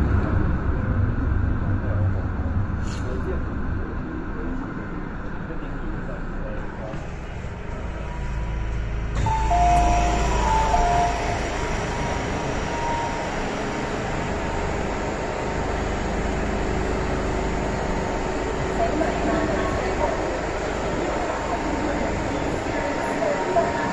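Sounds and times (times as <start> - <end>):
low rumble and hum of train: 0.0 - 23.9
two-note electronic chime: 9.3 - 13.4.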